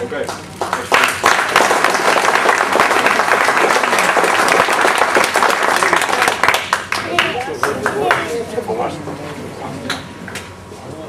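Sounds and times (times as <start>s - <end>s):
people applauding: 0.0s - 8.5s.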